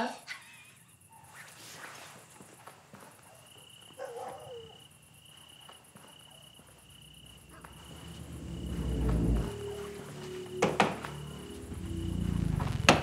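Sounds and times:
crickets chirping: 0.0s - 13.0s
high-pitched insect trill: 0.0s - 13.0s
low rumble: 7.5s - 13.0s.

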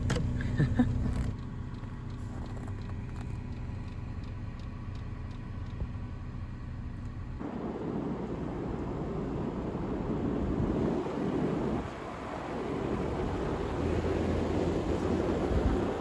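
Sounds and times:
diesel heater humming: 0.0s - 16.0s
faint ticking: 1.1s - 7.2s
truck driving rushing noise: 7.2s - 16.0s.

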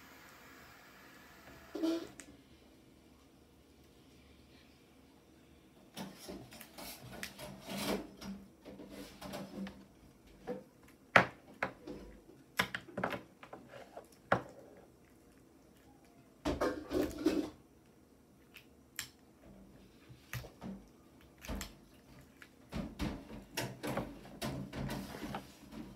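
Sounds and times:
rubbing and fumbling: 6.0s - 10.7s.

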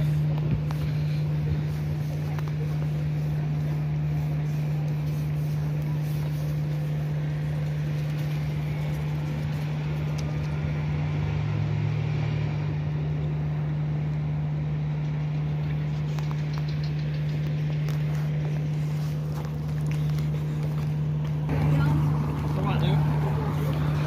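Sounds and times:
street background noise: 0.0s - 24.0s
vehicle engine idling: 0.0s - 24.0s.

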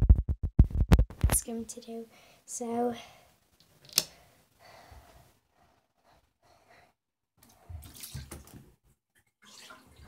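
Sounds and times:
faint breathing: 2.1s - 3.4s, 4.0s - 7.8s.

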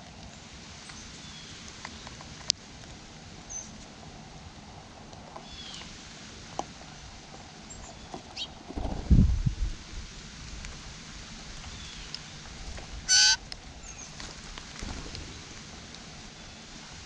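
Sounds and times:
flurry of bird wingbeats: 8.6s - 9.5s, 14.1s - 16.6s
harsh blue jay call: 13.1s - 14.0s.

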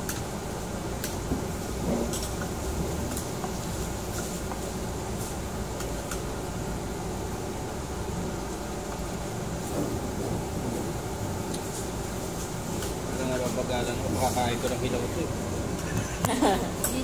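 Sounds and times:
ventilation hum: 0.0s - 17.0s.

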